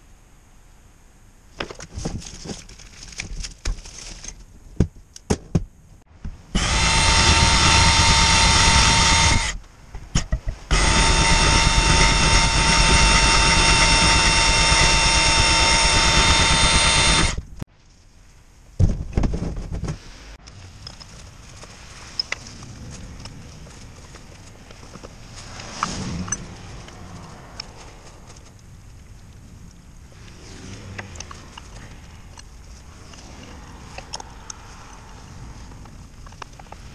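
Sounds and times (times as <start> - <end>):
power drill running: 6.6 - 9.6, 10.7 - 17.4.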